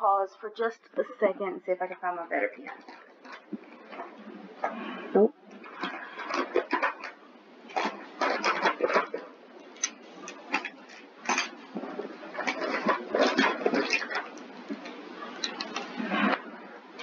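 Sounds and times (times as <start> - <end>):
small objects clicking and rustling: 5.5 - 16.5.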